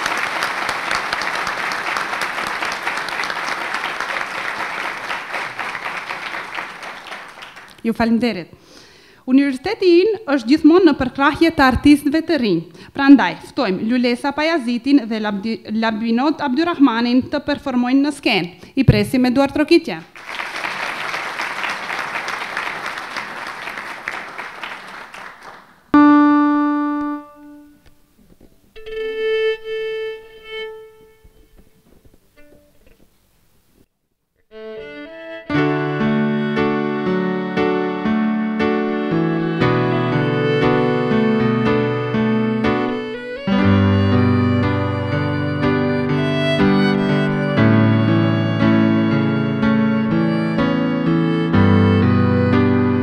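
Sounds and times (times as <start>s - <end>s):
large audience applauding: 0.0s - 7.9s, 20.1s - 25.9s
piano note ringing: 26.0s - 27.8s
violin playing: 26.0s - 28.0s, 28.8s - 32.6s, 34.4s - 53.0s.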